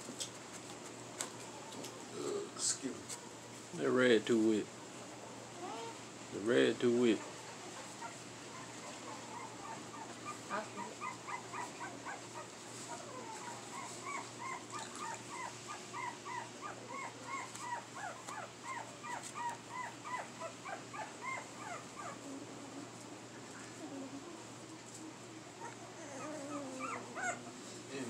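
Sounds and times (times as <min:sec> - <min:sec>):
puppies whining and crying: 0:07.2 - 0:22.8, 0:23.7 - 0:27.8.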